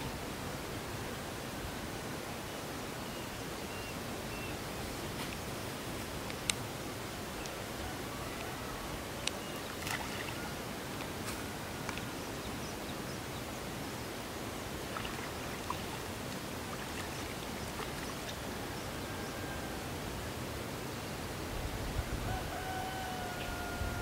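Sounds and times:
outdoor background hiss: 0.0s - 24.0s
faint clicks: 6.2s - 6.6s.

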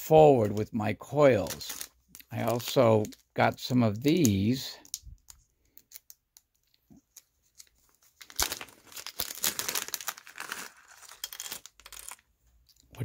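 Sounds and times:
plastic bag crinkling: 7.5s - 12.2s.

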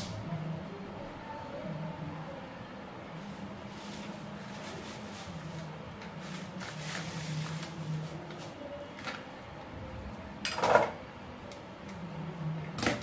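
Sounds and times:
dishes and utensils clinking: 10.4s - 11.0s
dishes clattering: 10.4s - 11.0s.

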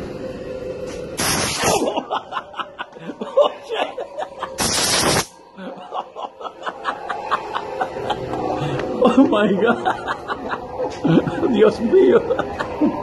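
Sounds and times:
loud hiss: 0.9s - 1.9s, 4.6s - 5.4s
person laughing: 1.6s - 4.7s, 5.6s - 13.0s.

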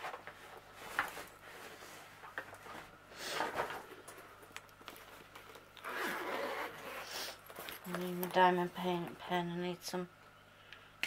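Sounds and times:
rustling craft items: 6.4s - 9.2s.

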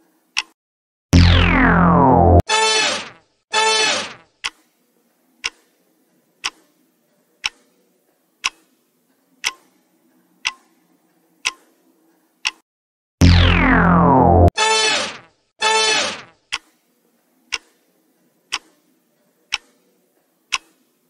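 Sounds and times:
countdown timer ticking: 13.2s - 14.5s.

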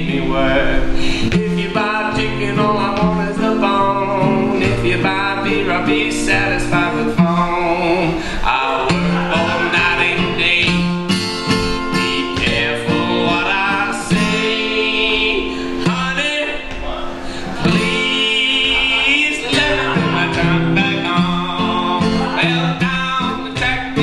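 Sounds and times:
acoustic guitar: 0.0s - 24.0s
man singing: 0.0s - 24.0s.

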